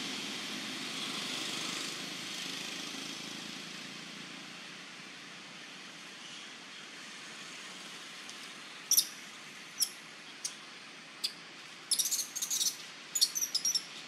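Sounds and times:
forest ambience hiss: 0.1s - 14.0s
high-pitched animal chirps: 8.9s - 9.2s, 11.2s - 14.0s.

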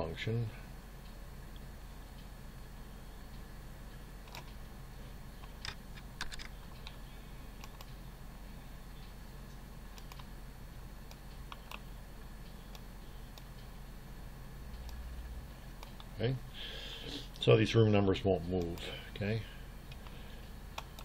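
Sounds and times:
faint low hum: 0.0s - 21.0s
mouse clicks: 7.6s - 8.0s, 10.0s - 10.3s.

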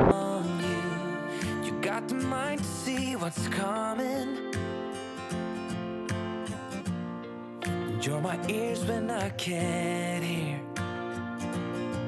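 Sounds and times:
person singing: 0.0s - 5.1s, 7.7s - 11.2s
strummed acoustic guitar: 0.0s - 12.0s.

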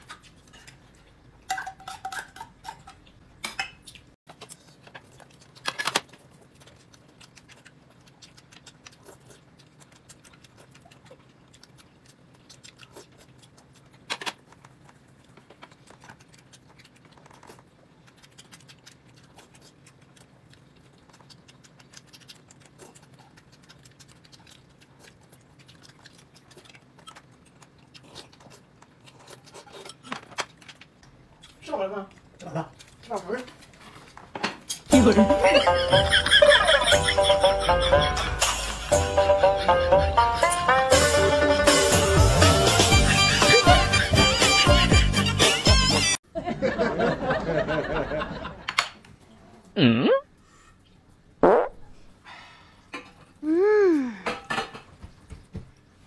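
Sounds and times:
chopsticks and bowls clinking: 1.5s - 4.0s.

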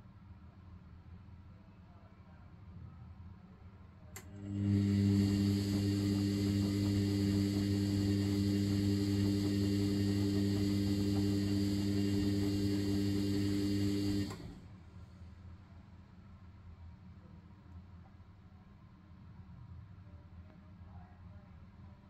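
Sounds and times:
washing machine motor humming: 4.2s - 14.8s.

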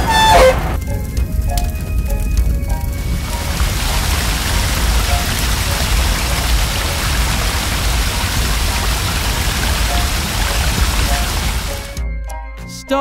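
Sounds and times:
low rumble: 0.0s - 11.6s
fire hose spraying water: 2.5s - 12.0s.

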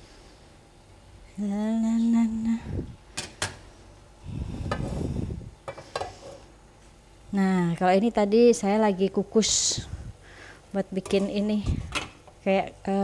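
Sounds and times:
woman humming: 1.3s - 3.0s.

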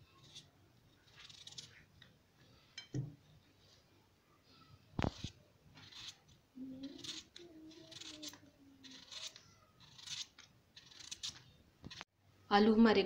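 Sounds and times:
knife slicing potato: 0.1s - 1.9s, 5.0s - 12.0s.

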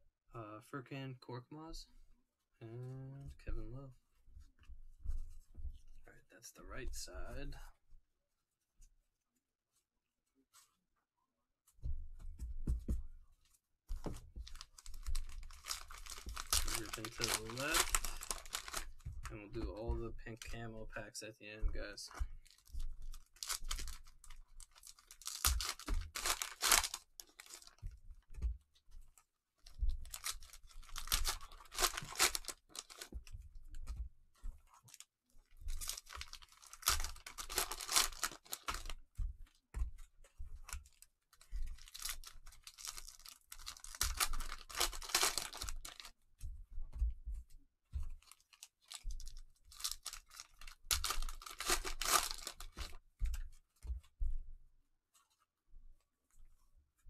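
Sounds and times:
plastic wrappers tearing and crinkling: 14.4s - 20.6s, 21.7s - 27.9s, 29.6s - 33.3s, 34.8s - 35.1s, 35.7s - 39.0s, 40.7s - 46.1s, 48.2s - 53.0s.

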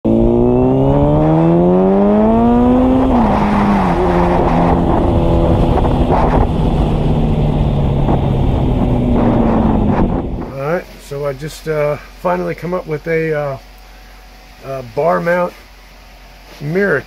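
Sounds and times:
motorcycle engine revving: 0.0s - 10.7s
wind rush: 0.1s - 10.7s.

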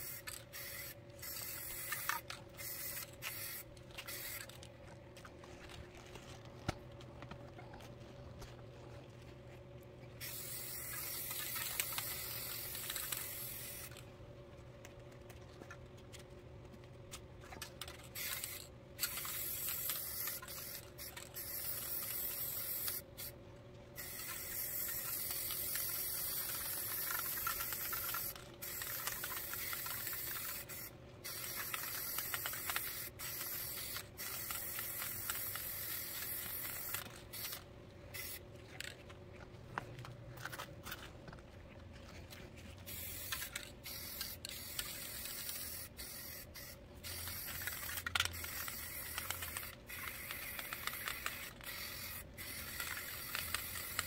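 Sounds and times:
spray paint can hissing: 0.0s - 4.6s, 10.2s - 14.0s, 18.0s - 23.3s, 24.0s - 38.9s, 42.9s - 54.0s.

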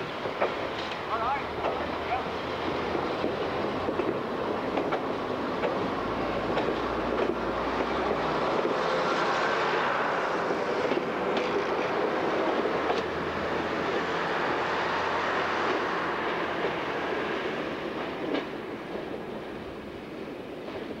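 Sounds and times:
diesel train engines: 0.0s - 21.0s
train wheels clicking over rail joints: 0.1s - 1.9s, 2.8s - 9.1s, 10.6s - 13.2s, 17.7s - 19.8s.

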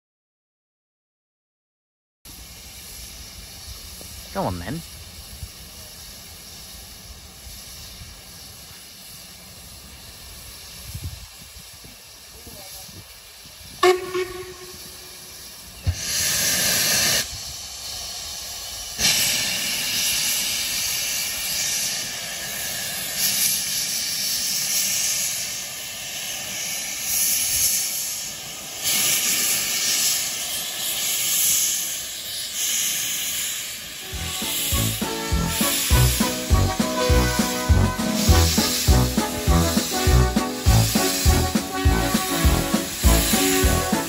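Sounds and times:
steam locomotive hissing: 2.3s - 44.0s
music: 34.1s - 44.0s.

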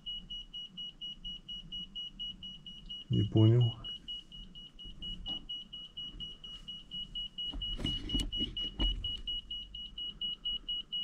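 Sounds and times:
handling rustling and knocking: 7.4s - 9.4s.

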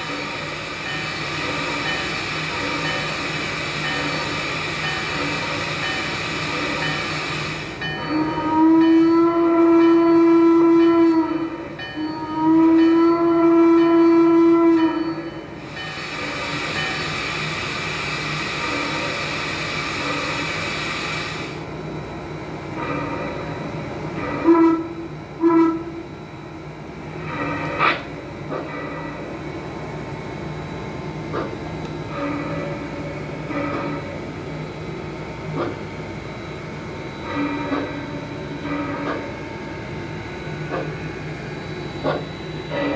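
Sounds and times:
steam whistle blasts: 8.0s - 15.2s, 24.3s - 26.1s
steam hiss: 15.7s - 21.6s.

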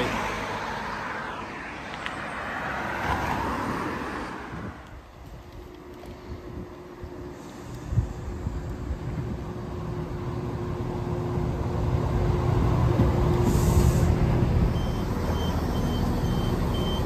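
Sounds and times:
diesel train engines and wheels: 0.0s - 17.0s
short air hiss: 13.4s - 14.2s
high door warning beeps: 14.7s - 17.0s.

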